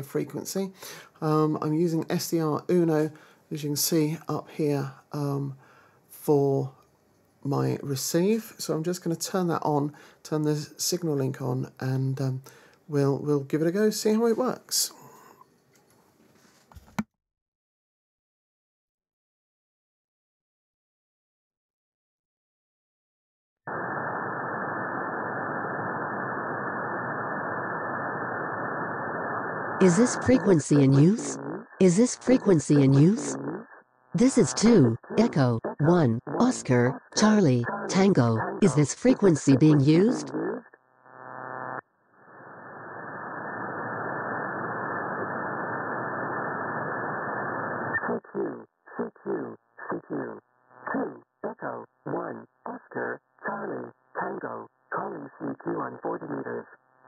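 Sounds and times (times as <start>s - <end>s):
choppy voice through receiver: 0.0s - 5.6s, 29.8s - 40.7s, 48.0s - 56.8s
radio static hiss: 23.7s - 57.0s.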